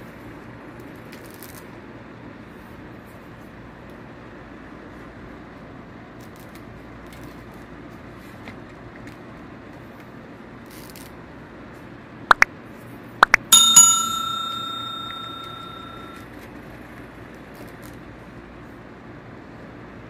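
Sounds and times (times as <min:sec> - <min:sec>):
bell ringing: 0:13.2 - 0:16.2.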